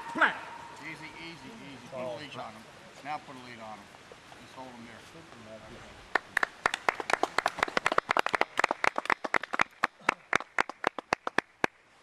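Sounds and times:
people clapping: 6.1s - 11.8s.

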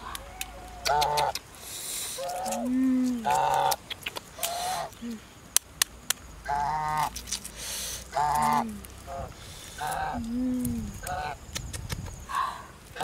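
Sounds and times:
geese honking: 8.1s - 10.2s.

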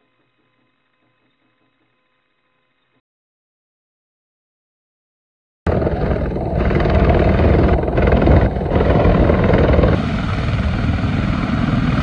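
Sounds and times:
helicopter flying low overhead: 5.7s - 12.0s.

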